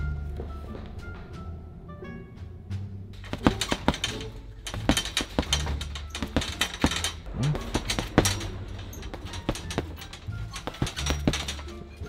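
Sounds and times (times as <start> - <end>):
faint music: 0.0 - 12.0
gloves punching heavy bag: 3.2 - 11.7.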